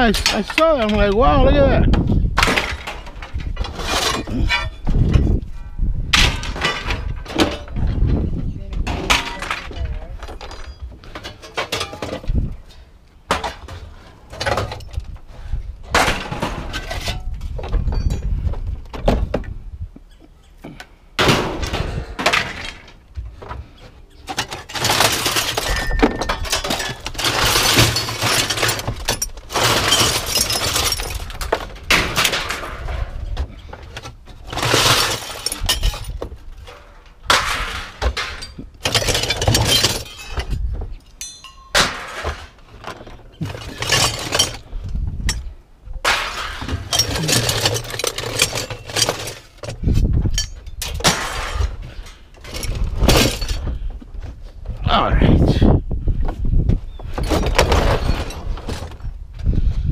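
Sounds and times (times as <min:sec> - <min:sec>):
scrap metal crashing onto pile: 0:02.4 - 0:05.4, 0:06.1 - 0:08.0, 0:08.8 - 0:12.3, 0:15.9 - 0:17.2, 0:24.3 - 0:44.7, 0:46.0 - 0:49.6.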